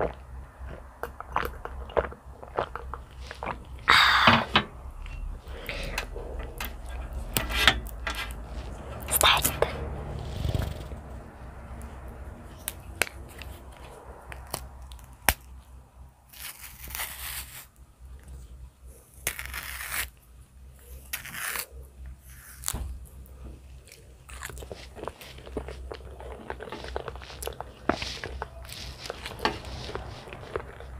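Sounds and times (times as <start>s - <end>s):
low hum: 0.0s - 16.4s
banana peel tearing: 16.3s - 17.8s, 19.1s - 20.2s, 20.9s - 23.0s.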